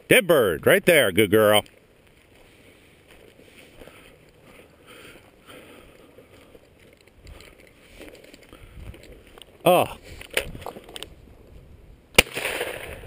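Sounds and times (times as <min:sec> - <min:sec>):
footsteps through dry grass: 0:01.6 - 0:11.3.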